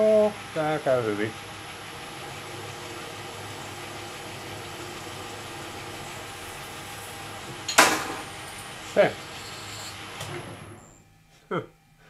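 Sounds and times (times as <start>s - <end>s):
metal lathe humming: 0.0s - 11.0s
parting tool cutting metal: 7.7s - 10.2s.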